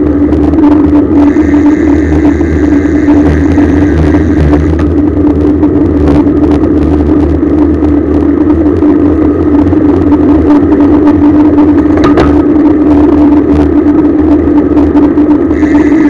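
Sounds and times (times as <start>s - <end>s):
bicycle riding wind rush: 0.0s - 16.0s.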